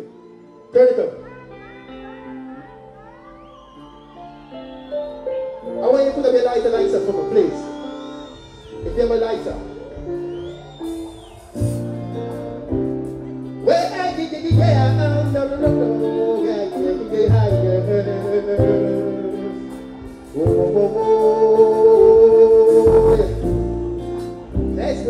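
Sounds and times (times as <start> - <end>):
slow backing track: 5.0 - 25.0
man singing into a microphone: 13.6 - 23.5.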